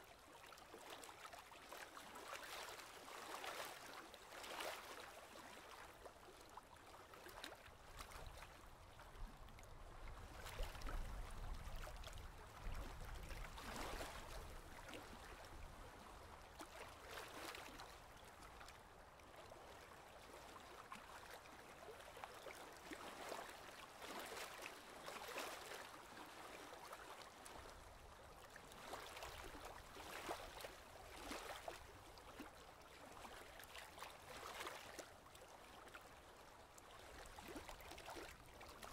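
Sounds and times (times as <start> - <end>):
paddle splashing in water: 28.4 - 32.4, 33.3 - 35.5, 37.0 - 38.9.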